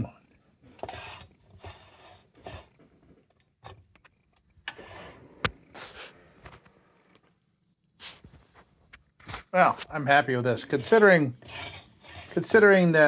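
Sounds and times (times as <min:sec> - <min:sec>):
short rustling scrapes: 0:04.8 - 0:06.4, 0:08.0 - 0:08.7, 0:10.0 - 0:13.0.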